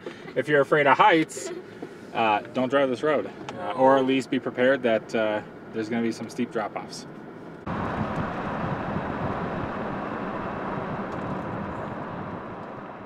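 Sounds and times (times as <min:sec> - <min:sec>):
vehicle road and wind noise: 0:00.0 - 0:13.0.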